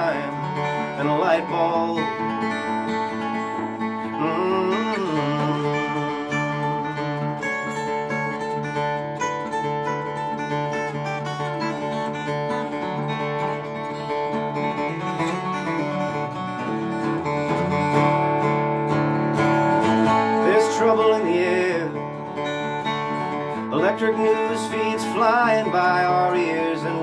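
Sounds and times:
wordless vocal-like line: 0:00.0 - 0:07.1, 0:23.6 - 0:27.0
acoustic guitar ringing chords: 0:00.0 - 0:27.0.

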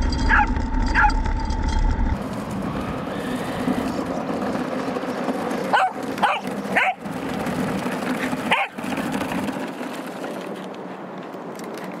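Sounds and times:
dog barking: 0:05.7 - 0:07.0, 0:08.5 - 0:08.7.

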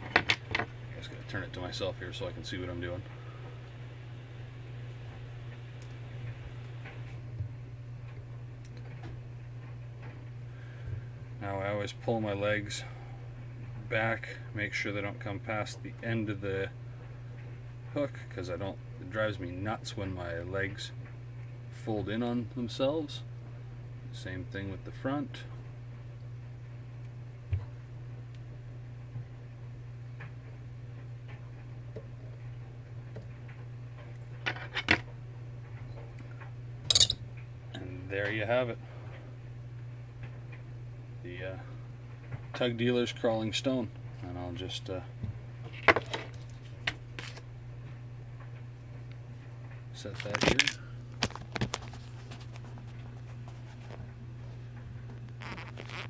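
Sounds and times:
steady low hum: 0:00.0 - 0:56.0
tool clicks: 0:36.9 - 0:37.2.

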